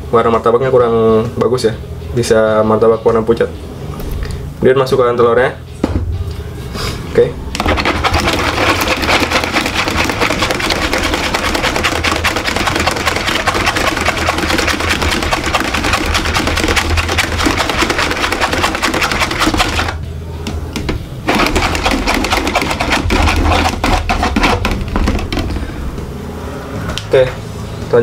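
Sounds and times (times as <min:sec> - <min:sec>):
wire whisk beating in metal bowl: 0:07.6 - 0:20.0, 0:21.3 - 0:25.6.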